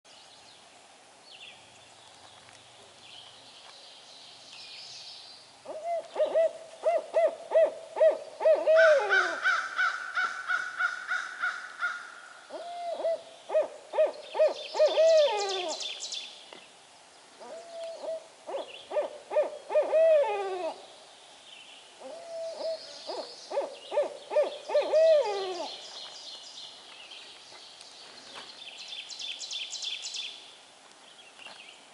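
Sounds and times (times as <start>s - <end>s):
owl hooting: 5.7s - 16.0s, 17.4s - 20.8s, 22.0s - 25.8s.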